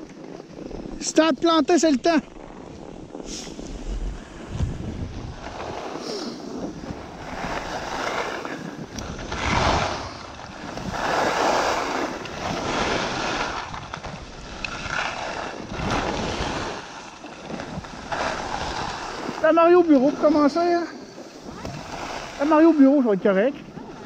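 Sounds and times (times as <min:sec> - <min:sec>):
wind rushing over microphone: 0:00.0 - 0:24.0
skis hissing on snow: 0:03.2 - 0:04.4, 0:05.3 - 0:13.7, 0:14.5 - 0:23.0.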